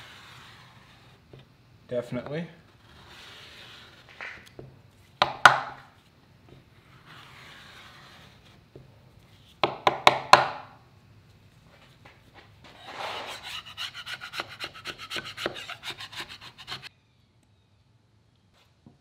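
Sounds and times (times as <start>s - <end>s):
scraper scraping wood: 0.0s - 1.4s, 2.6s - 4.5s, 6.8s - 8.6s, 12.6s - 16.9s.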